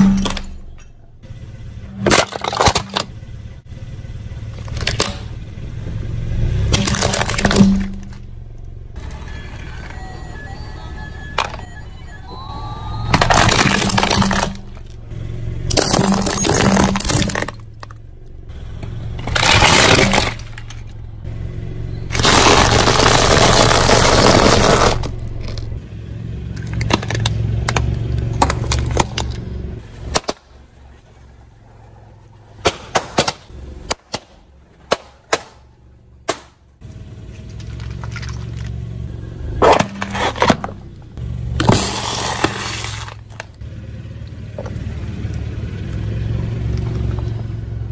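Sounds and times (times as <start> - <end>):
low engine hum: 0.0 - 47.9
tyres crushing brittle objects: 6.7 - 8.2, 13.1 - 15.0, 15.7 - 18.0, 19.2 - 21.0, 22.1 - 25.7, 26.6 - 29.4, 37.3 - 38.8, 41.6 - 43.6.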